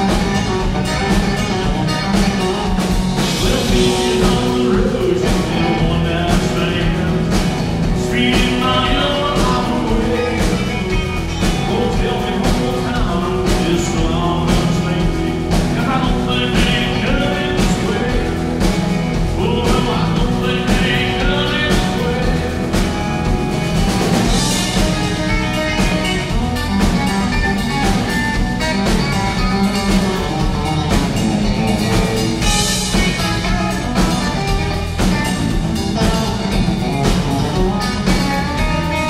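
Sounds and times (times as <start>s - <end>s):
country rock band playing: 0.0s - 39.0s
man singing into microphone: 3.3s - 18.6s, 19.3s - 22.9s.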